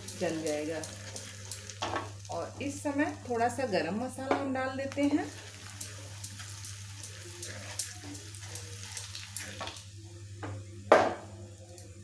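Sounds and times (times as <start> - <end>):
spices sizzling in oil: 0.0 - 10.0
spatula stirring: 5.2 - 9.8.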